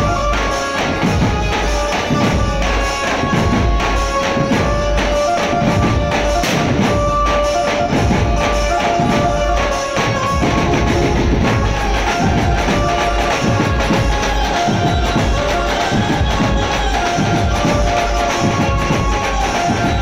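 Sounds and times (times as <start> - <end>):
barrel drums beaten in rhythm: 0.0 - 20.0
tambourine-like percussion: 0.0 - 20.0.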